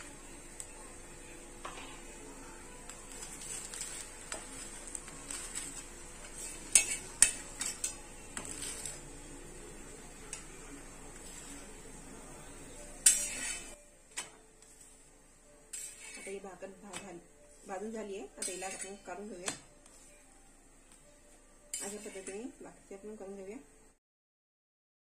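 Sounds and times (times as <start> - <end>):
flatbread sizzling in oil: 2.8 - 12.0, 12.9 - 13.8, 15.6 - 16.5, 17.4 - 20.3, 21.7 - 22.6
metal spatula scraping griddle: 2.9 - 9.5, 11.1 - 20.3, 21.7 - 22.6.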